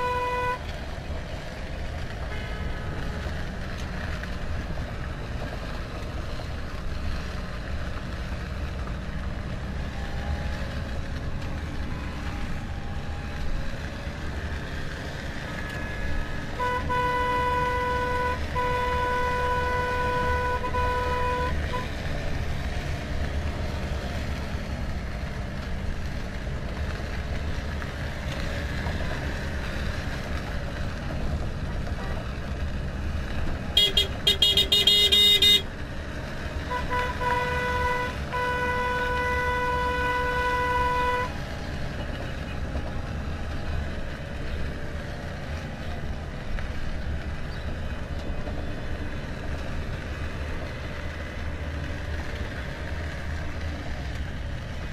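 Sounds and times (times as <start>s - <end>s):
steady car horn: 0.0s - 0.6s, 16.6s - 21.9s, 33.8s - 35.6s, 36.7s - 41.4s
car engines and road noise: 0.0s - 54.9s.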